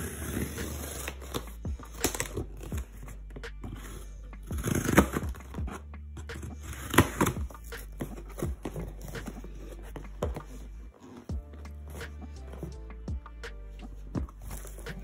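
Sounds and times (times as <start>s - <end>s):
scissors slitting packing tape: 0.0s - 2.8s, 3.6s - 5.4s.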